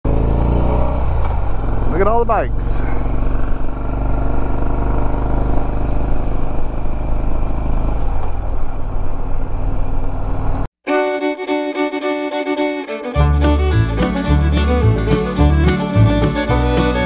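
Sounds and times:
motorcycle engine running: 0.1s - 10.7s
fiddle music: 10.8s - 17.0s.

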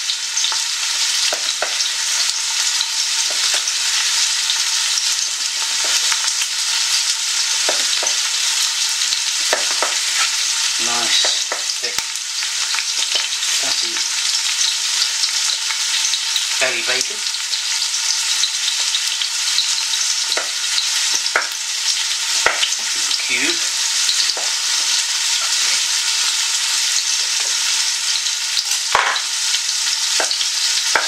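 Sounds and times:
onions sizzling in frying pan: 0.0s - 31.0s
knife knocking on chopping board: 11.2s - 11.7s.

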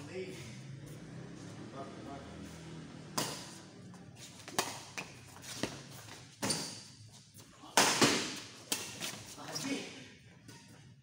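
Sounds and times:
rackets hitting shuttlecock: 3.1s - 3.7s, 4.4s - 6.9s, 7.7s - 9.2s.

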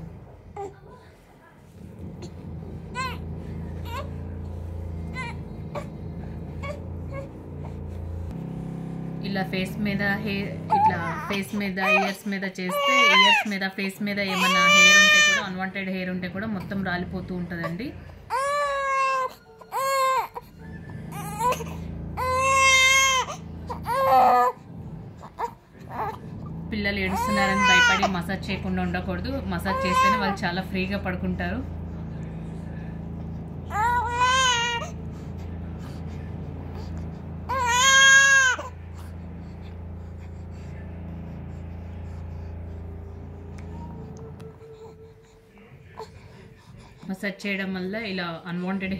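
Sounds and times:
steady low hum: 0.0s - 18.9s, 20.3s - 48.9s
baby crying: 3.0s - 3.2s, 3.8s - 4.2s, 10.7s - 15.5s, 18.3s - 24.6s, 27.0s - 28.6s, 29.4s - 30.5s, 33.7s - 35.1s, 37.5s - 38.8s.

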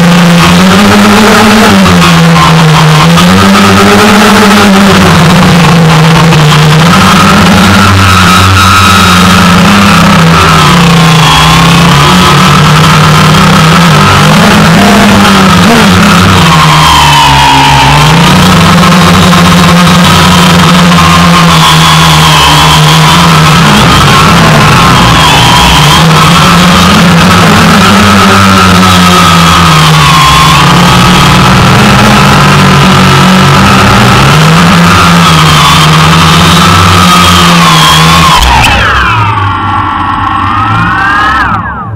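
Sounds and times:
drone motors and propellers whining: 0.0s - 41.9s.

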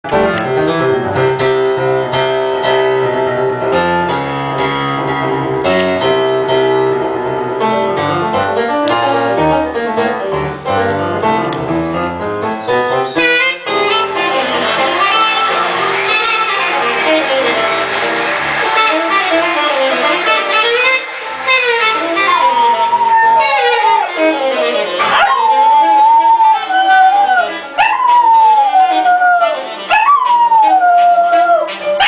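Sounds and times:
jazz piano: 0.0s - 32.0s
held saxophone notes: 12.7s - 27.7s.

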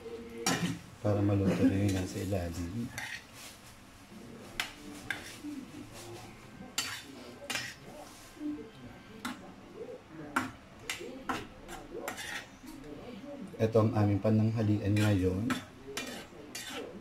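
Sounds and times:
metal spoon scraping frying pan: 2.9s - 3.3s, 4.6s - 5.4s, 6.8s - 7.9s, 10.9s - 12.5s, 14.9s - 17.0s.

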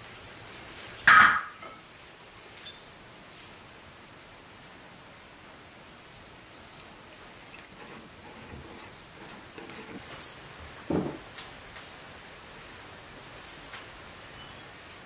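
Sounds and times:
steady rain-like hiss: 0.0s - 15.0s
soft thud: 10.9s - 11.2s.

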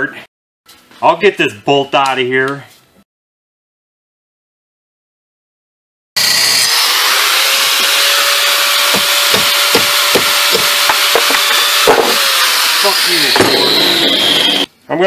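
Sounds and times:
angle grinder cutting steel: 6.2s - 14.7s
regular knocks: 8.9s - 12.3s.

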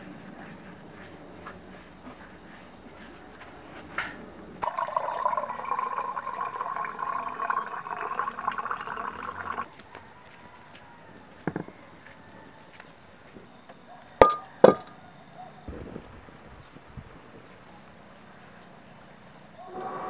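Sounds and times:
water pouring into pitcher: 4.6s - 9.7s.

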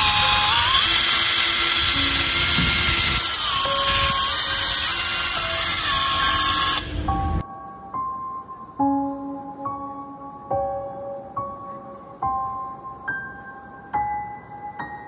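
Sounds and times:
impact driver motor whine: 0.0s - 7.0s.

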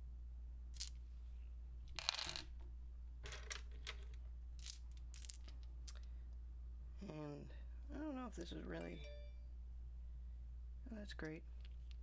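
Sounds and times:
dice clattering on wooden table: 0.8s - 1.0s, 1.9s - 6.0s.

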